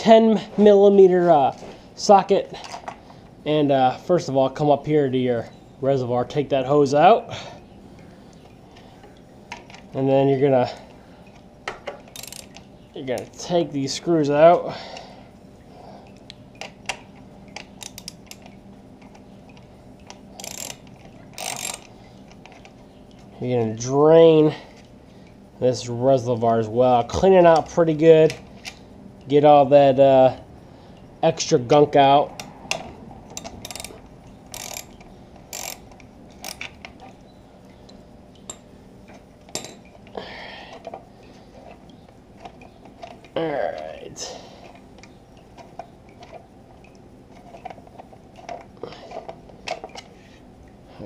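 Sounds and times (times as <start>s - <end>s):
ratchet clicking: 12.1s - 12.6s, 17.8s - 18.5s, 20.4s - 21.9s, 33.3s - 36.8s.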